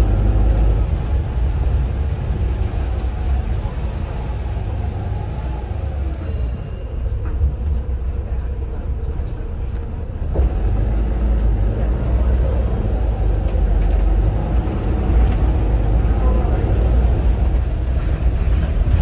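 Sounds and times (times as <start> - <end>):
bus engine rumbling: 0.0 - 19.0.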